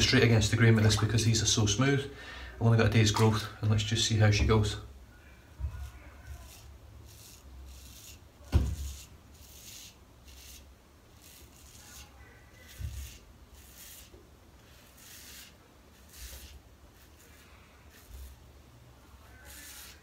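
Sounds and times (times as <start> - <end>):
razor scraping stubble: 5.6 - 18.5, 19.1 - 20.0
dull thump: 8.5 - 8.8.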